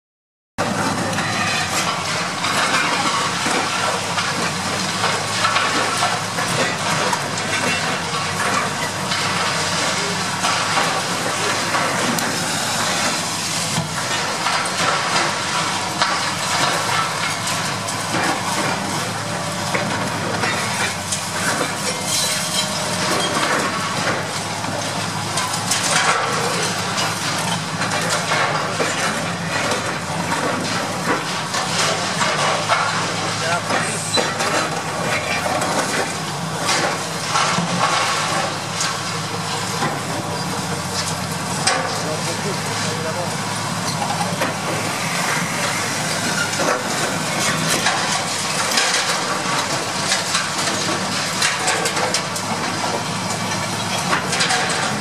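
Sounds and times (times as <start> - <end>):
concrete crunching and falling: 0.6 - 55.0
diesel engine running under load: 0.6 - 55.0.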